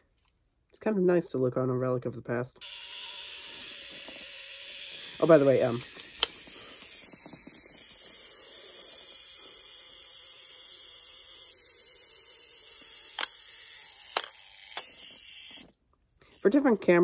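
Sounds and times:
mechanical timer whirring: 2.6s - 17.0s
sharp clicks: 13.1s - 13.4s, 14.1s - 15.1s.

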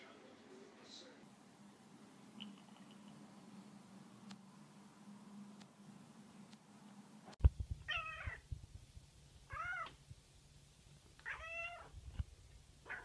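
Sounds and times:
cat meowing: 7.9s - 8.4s, 9.5s - 10.0s, 11.2s - 11.9s.

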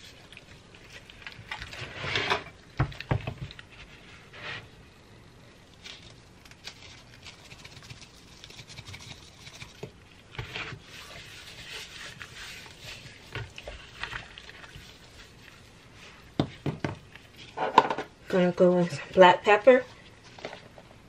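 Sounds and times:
hands rubbing raw chicken: 7.0s - 17.6s.

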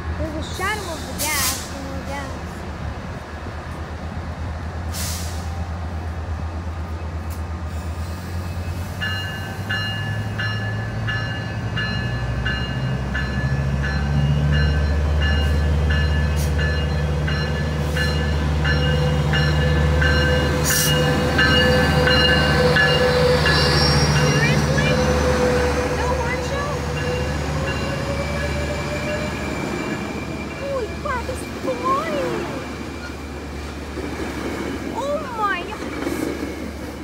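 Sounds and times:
diesel locomotive engine drone: 0.0s - 37.0s
locomotive bell ringing: 9.0s - 32.4s
high squeal: 20.7s - 25.8s.

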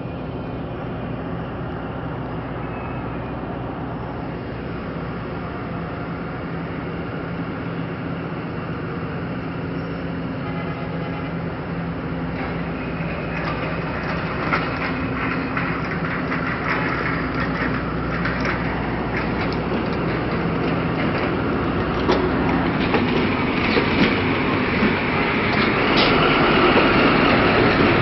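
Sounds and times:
locomotive engine droning: 0.0s - 28.0s
wheel clatter on rails: 9.7s - 28.0s.

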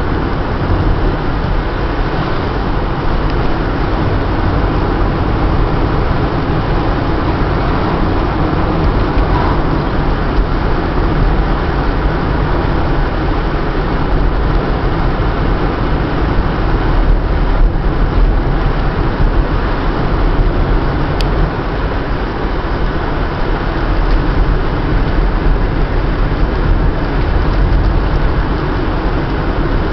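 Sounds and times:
car road noise rumble: 0.0s - 29.9s.

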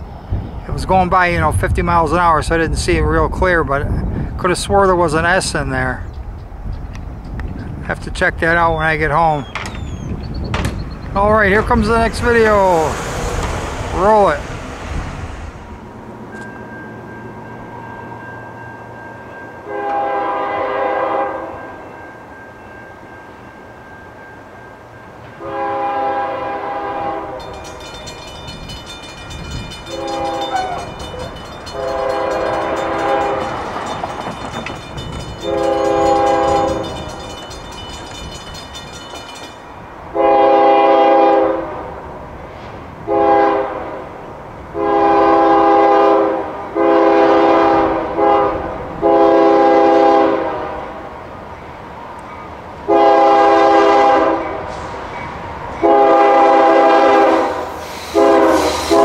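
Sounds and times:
passing train rumble: 0.0s - 59.0s
locomotive air horn: 19.6s - 21.6s, 25.4s - 27.6s, 29.9s - 33.6s, 35.4s - 37.0s, 40.1s - 41.9s, 43.1s - 44.0s, 44.8s - 51.0s, 52.9s - 54.8s, 55.8s - 59.0s.

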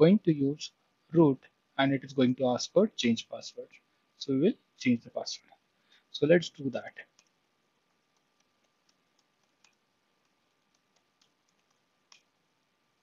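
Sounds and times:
faint keyboard keystrokes: 7.1s - 12.4s.

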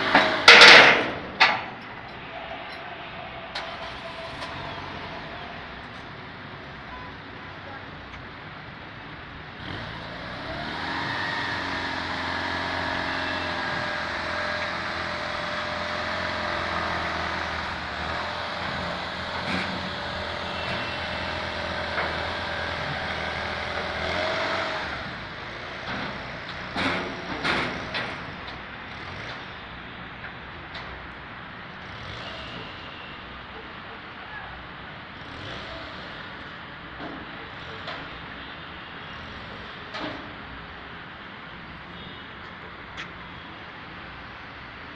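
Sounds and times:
sports car engine revving: 9.6s - 18.3s.

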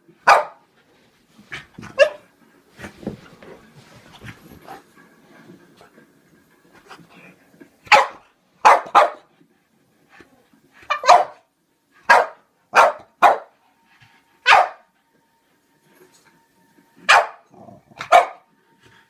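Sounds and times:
dog barking: 0.2s - 0.6s, 2.0s - 2.2s, 7.9s - 9.3s, 10.9s - 11.5s, 12.1s - 13.5s, 14.4s - 14.9s, 17.1s - 18.5s.

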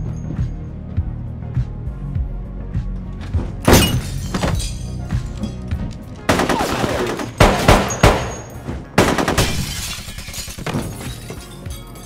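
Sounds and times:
glass breaking: 3.6s - 5.6s, 9.4s - 12.0s
pistol gunshots: 6.3s - 9.9s.

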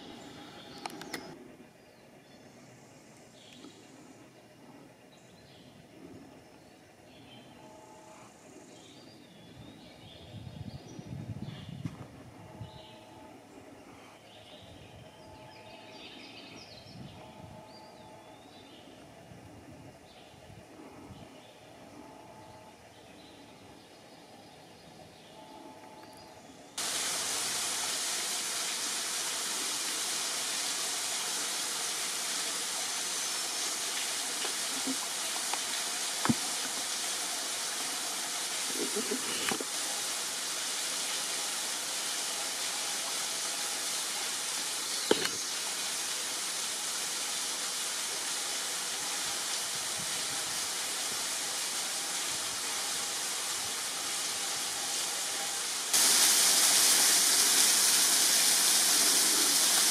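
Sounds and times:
waterfall and creek water rushing: 26.8s - 59.9s.

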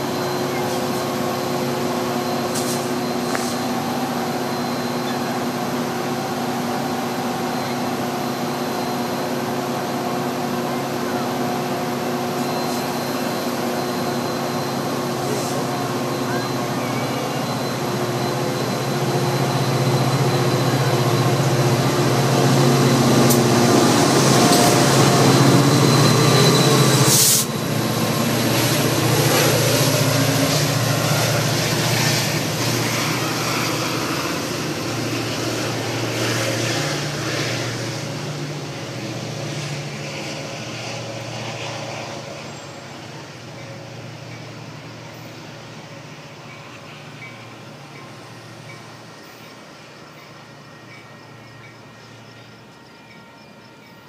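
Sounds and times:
diesel train rolling: 0.0s - 54.0s
sharp hiss: 27.0s - 27.5s.

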